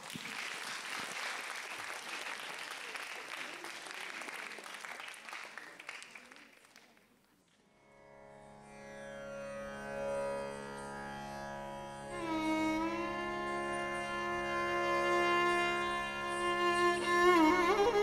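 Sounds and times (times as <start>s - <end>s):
audience applauding: 0.0s - 7.2s
sustained string tone: 7.9s - 18.0s.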